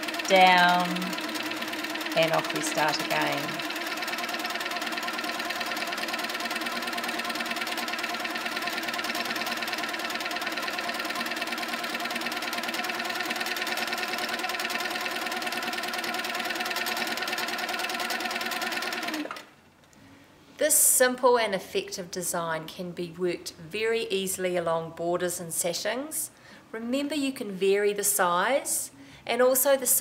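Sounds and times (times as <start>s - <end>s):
quilting machine motor hum: 0.0s - 19.5s.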